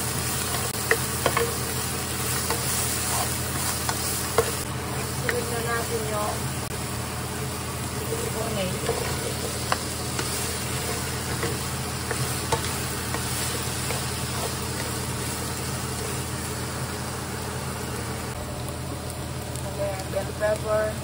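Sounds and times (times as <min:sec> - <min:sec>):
meat and onions sizzling: 0:00.0 - 0:21.0
spatula tapping pan: 0:00.5 - 0:01.7, 0:02.3 - 0:05.5, 0:08.8 - 0:15.0.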